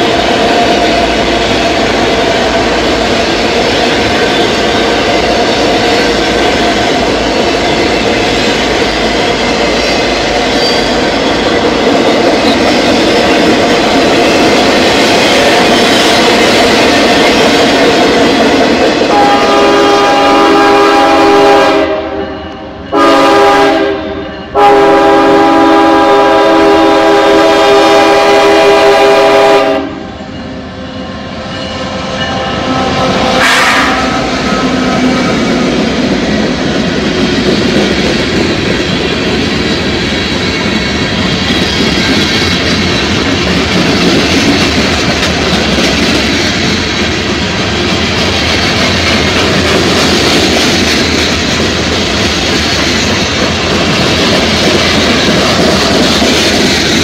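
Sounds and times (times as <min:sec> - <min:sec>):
freight train rumbling past: 0:00.0 - 0:57.0
locomotive air horn blasts: 0:19.1 - 0:30.1, 0:32.6 - 0:34.8.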